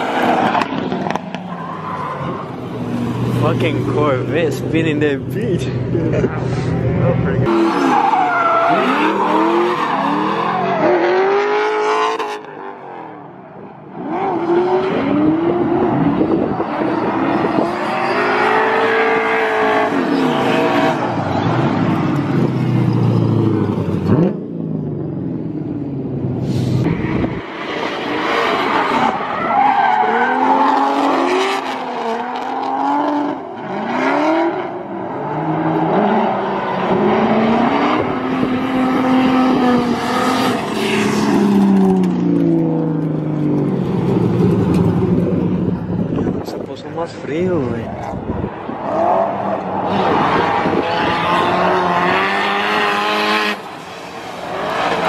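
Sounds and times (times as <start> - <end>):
tires squealing and skidding: 0.0 - 4.2, 7.5 - 12.5, 14.0 - 24.2, 26.4 - 42.3, 47.0 - 55.0
car engines revving: 0.0 - 55.0.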